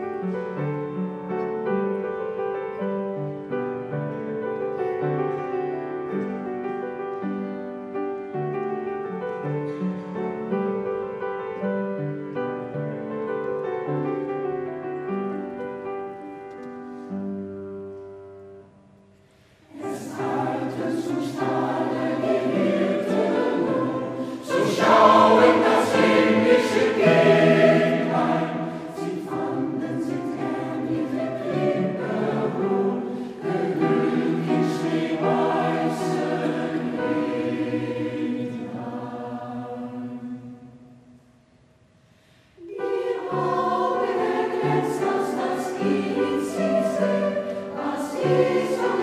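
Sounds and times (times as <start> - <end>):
mixed choir singing in harmony: 19.6 - 41.1, 42.6 - 49.0.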